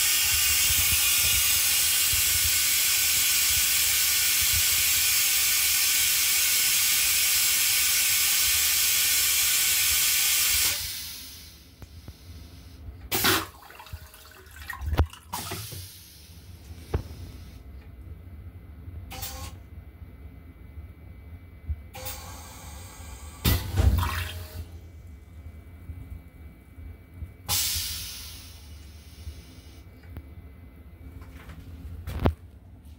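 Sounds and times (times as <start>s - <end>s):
toilet flushing hiss: 0.0s - 17.6s, 19.1s - 19.6s, 22.0s - 24.9s, 27.4s - 29.9s.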